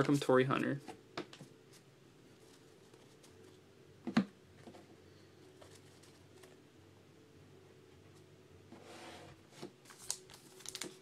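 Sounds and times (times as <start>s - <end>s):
foil packs clicking and rustling: 9.9s - 11.0s.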